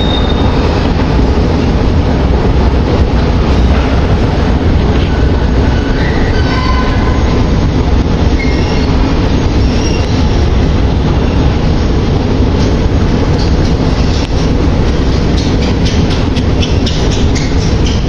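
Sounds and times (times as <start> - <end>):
high-pitched wheel squeals: 0.0 - 0.5
metro train rumbling: 0.0 - 18.0.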